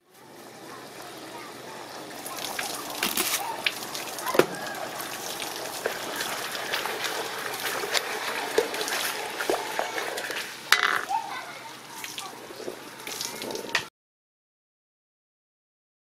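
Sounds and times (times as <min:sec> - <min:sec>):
spatula stirring sauce in wok: 0:05.0 - 0:10.7.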